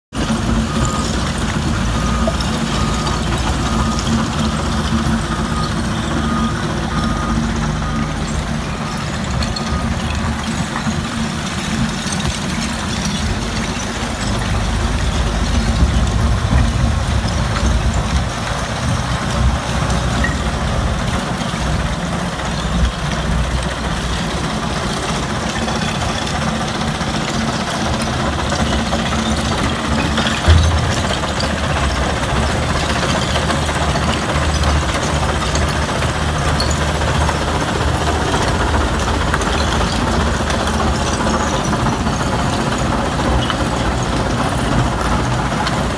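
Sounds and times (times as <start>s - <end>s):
heavy diesel machinery running: 0.1s - 45.9s
reversing alarm beeping: 0.2s - 12.2s, 28.5s - 32.8s.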